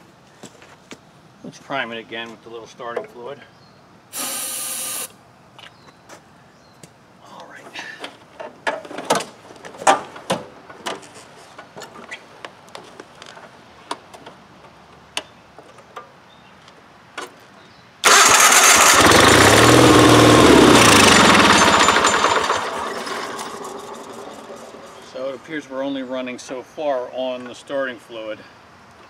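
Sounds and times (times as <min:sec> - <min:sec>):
tractor engine running: 0:18.0 - 0:25.1.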